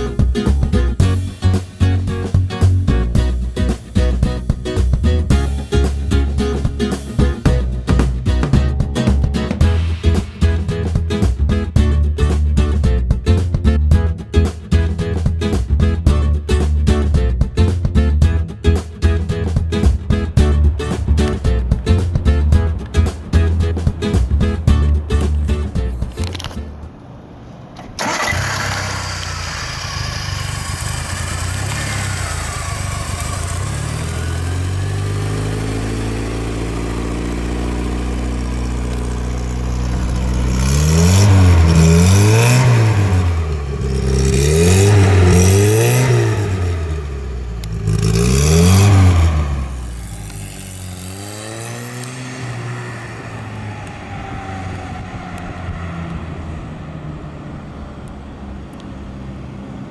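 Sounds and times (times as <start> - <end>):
car engine idling and revving: 0.0 - 59.9.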